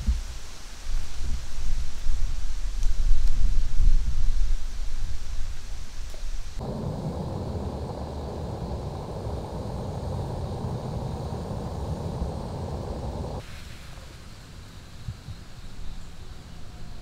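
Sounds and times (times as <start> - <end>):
low rumbling noise: 6.4 - 13.4.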